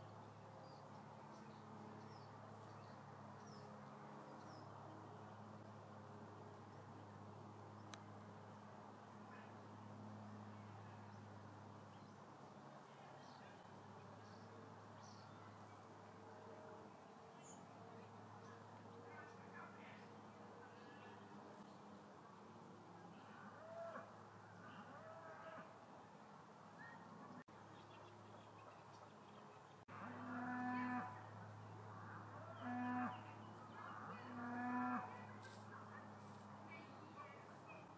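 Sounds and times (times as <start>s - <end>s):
cattle mooing: 30.0s - 31.1s.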